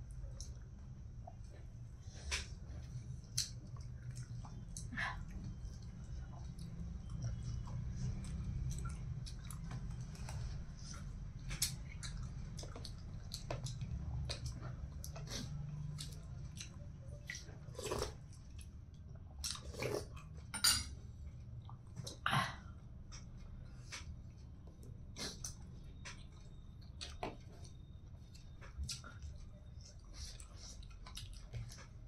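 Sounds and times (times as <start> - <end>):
low steady hum: 0.0 - 32.0
person chewing with wet mouth clicks: 3.3 - 4.9, 5.5 - 18.7, 30.2 - 31.8.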